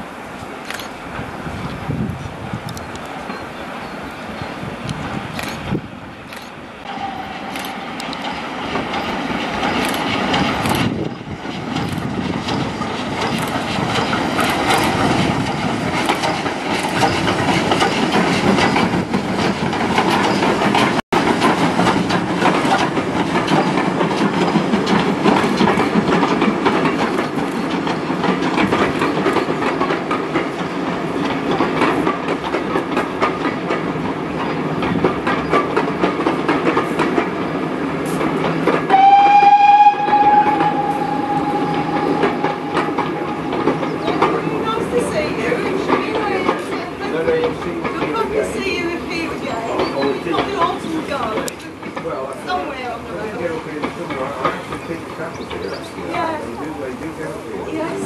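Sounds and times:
train wheels on rails: 0.0s - 58.0s
steam locomotive exhaust chuffing: 6.8s - 52.3s.

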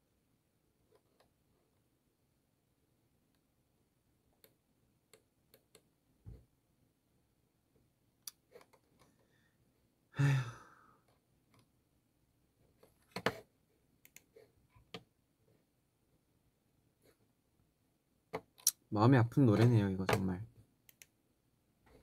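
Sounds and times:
man sighing: 10.1s - 11.0s.

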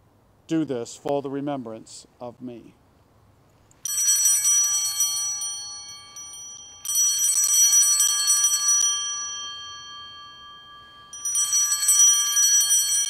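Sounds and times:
altar bells jangling: 3.8s - 13.0s.

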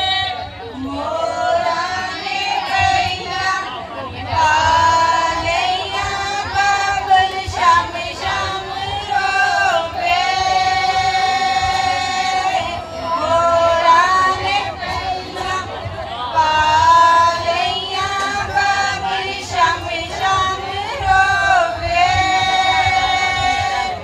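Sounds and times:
woman singing into microphone: 0.0s - 24.0s
women singing along: 0.0s - 24.0s.

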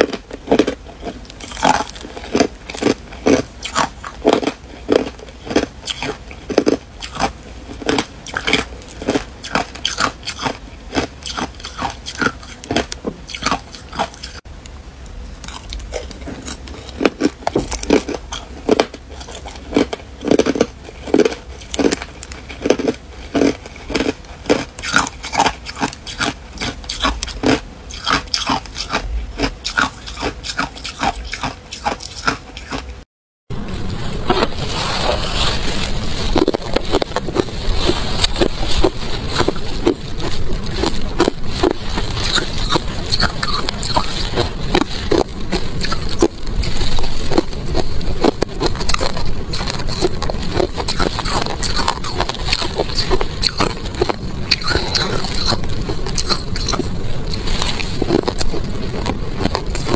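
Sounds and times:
ice crunched between teeth: 0.0s - 14.4s, 15.4s - 32.9s, 34.3s - 59.9s.

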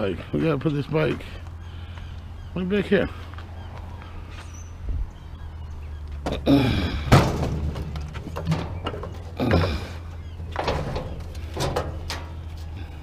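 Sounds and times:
bicycle clanking on scrap metal: 7.0s - 12.9s.

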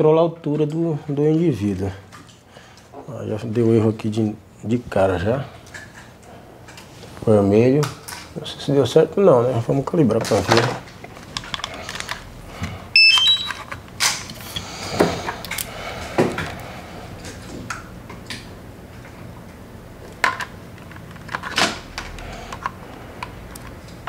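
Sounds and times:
hands handling objects clicking: 10.3s - 12.3s, 15.2s - 15.7s, 20.1s - 24.0s
electronic beeps: 13.0s - 13.6s.

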